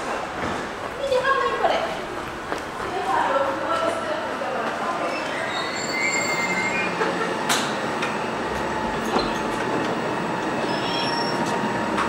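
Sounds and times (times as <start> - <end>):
commuter train noise: 0.0 - 12.0
faint high squealing: 4.9 - 7.0, 10.5 - 11.6.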